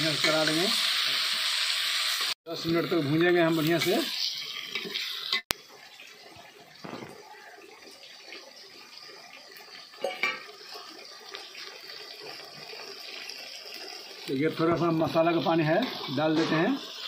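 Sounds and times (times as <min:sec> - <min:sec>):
faint hiss of frying: 0:00.0 - 0:17.0
water pouring into steel dish: 0:02.6 - 0:17.0.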